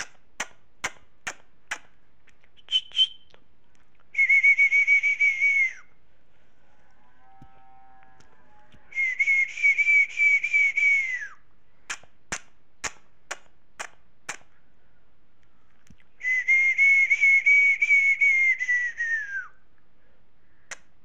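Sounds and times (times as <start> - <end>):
sharp snaps: 0.0 - 4.2, 11.9 - 14.6, 20.7 - 21.0
high whistle: 2.7 - 3.3, 4.2 - 5.9, 8.9 - 11.4, 16.2 - 19.5.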